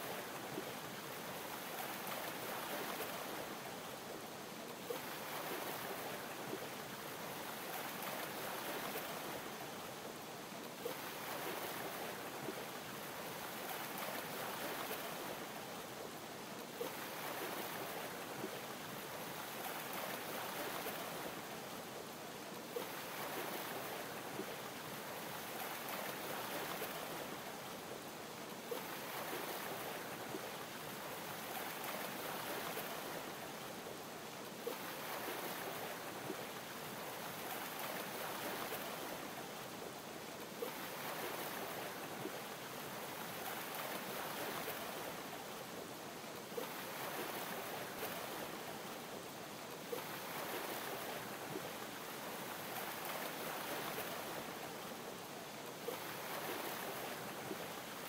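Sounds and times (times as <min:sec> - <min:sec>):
ocean waves lapping: 0:04.9 - 0:09.6, 0:10.8 - 0:15.6, 0:16.8 - 0:21.5, 0:22.7 - 0:27.5, 0:28.6 - 0:33.7, 0:34.4 - 0:39.7, 0:40.4 - 0:48.9, 0:49.6 - 0:54.9, 0:55.7 - 0:58.0.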